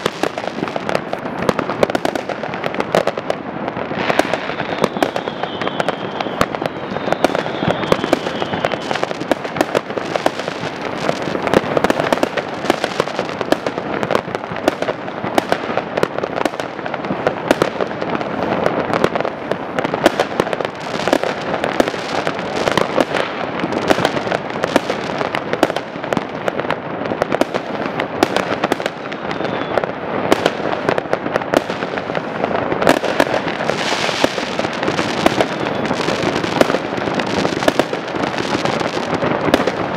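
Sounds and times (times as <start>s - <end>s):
fireworks bangs and crackling: 0.0s - 39.9s
falling firework whistle: 4.0s - 12.4s, 28.4s - 30.6s, 32.8s - 39.9s.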